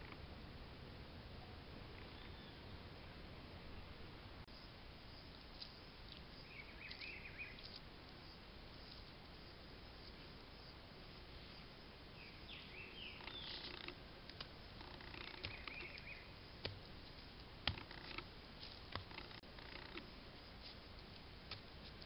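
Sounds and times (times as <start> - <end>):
short bird chirps: 6.4 - 7.8, 15.2 - 16.4
wet clay pats and taps: 15.3 - 16.8, 21.5 - 22.0.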